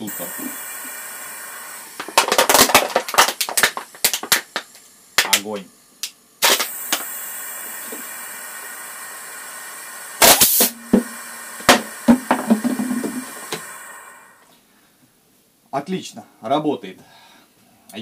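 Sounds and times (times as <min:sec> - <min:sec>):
vacuum pump hiss and hum: 0:00.0 - 0:14.7
plastic bottle crackling: 0:02.0 - 0:04.8.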